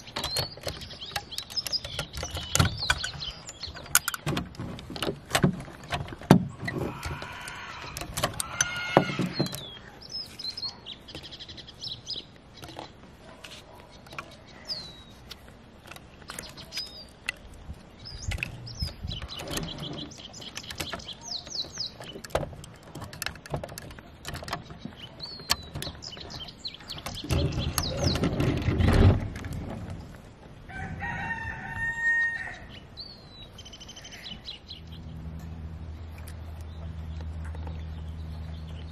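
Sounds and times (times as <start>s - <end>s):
toy truck parts clicking: 0.0s - 4.3s, 20.4s - 26.2s
small birds chirping: 0.0s - 38.9s
rooster crowing: 6.9s - 9.4s, 30.7s - 32.7s
toy wheels rolling on wood: 15.8s - 30.3s.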